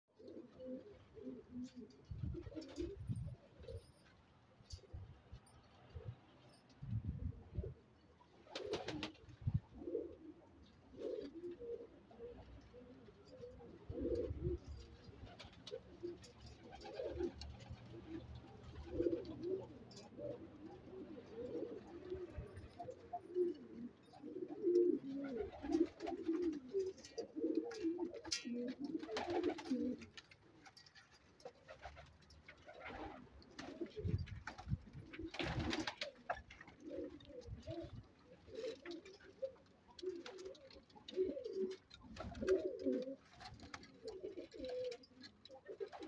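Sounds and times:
pigeons cooing: 0:00.1 - 0:04.1, 0:06.9 - 0:46.0.

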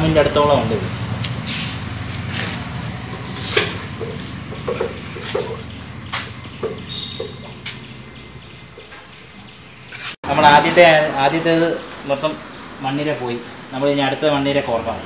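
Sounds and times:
faint high whine: 0:04.7 - 0:15.0.

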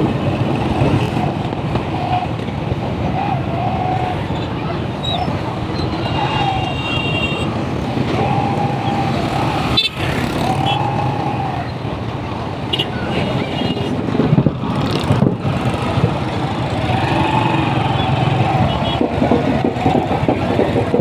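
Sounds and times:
street traffic: 0:00.0 - 0:21.0.

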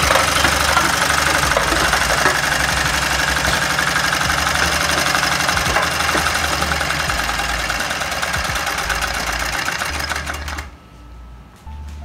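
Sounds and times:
small engine mechanical clatter: 0:00.0 - 0:10.7.

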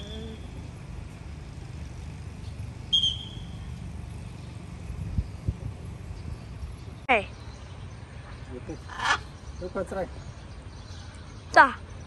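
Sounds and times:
low outdoor rumble: 0:00.0 - 0:09.5.

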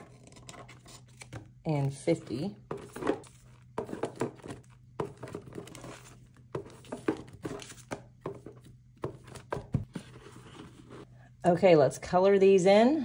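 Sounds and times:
paper rustling and crinkling: 0:02.1 - 0:11.1.

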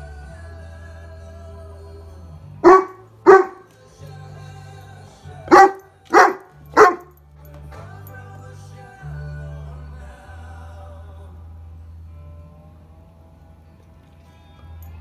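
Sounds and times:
quiet pop music: 0:00.0 - 0:15.0
dog barking: 0:02.6 - 0:03.7, 0:05.5 - 0:07.1.

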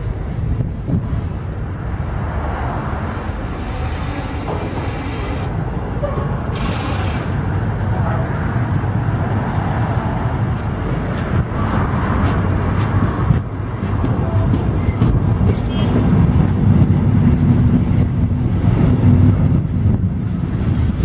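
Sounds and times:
freight train wheels on rails: 0:00.0 - 0:21.0
train hiss: 0:03.0 - 0:05.6, 0:06.6 - 0:07.5.

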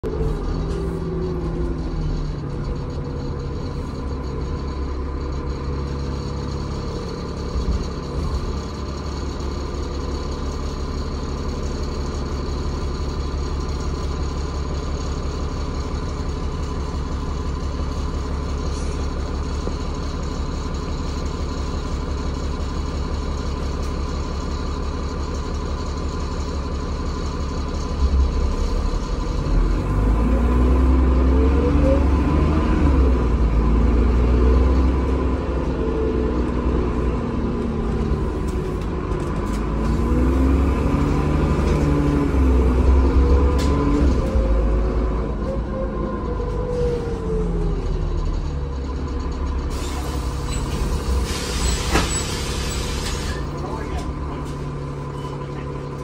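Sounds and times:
bus engine idling: 0:00.0 - 0:56.0.

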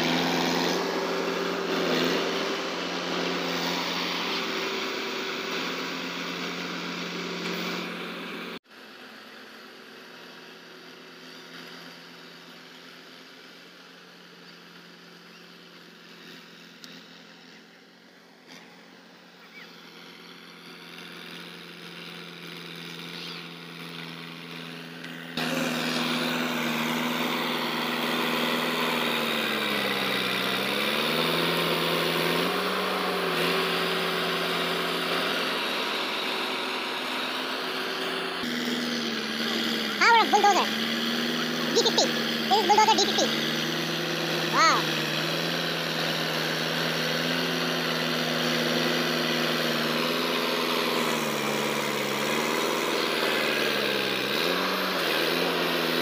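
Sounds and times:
bulldozer diesel engine running: 0:00.0 - 0:56.0.

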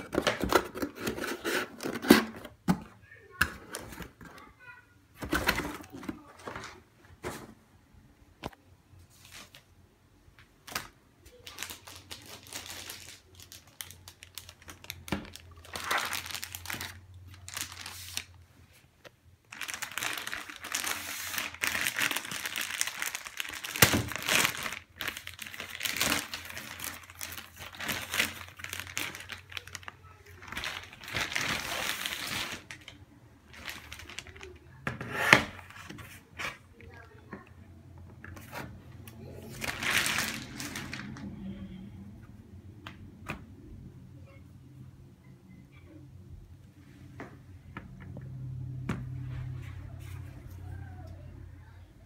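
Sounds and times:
plastic packaging crinkling: 0:10.6 - 0:18.4, 0:19.4 - 0:34.8, 0:39.4 - 0:41.3.

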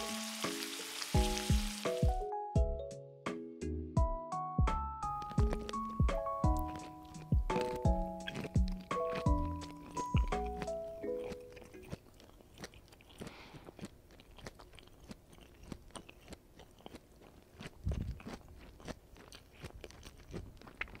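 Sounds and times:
hot oil crackling in a skillet: 0:00.0 - 0:02.2
background music: 0:00.0 - 0:12.0.

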